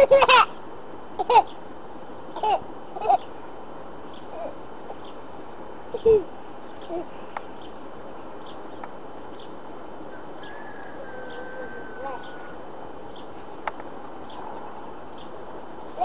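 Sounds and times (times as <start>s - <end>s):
bees humming: 0.0s - 16.0s
low bird calls: 8.4s - 13.5s, 14.2s - 15.4s.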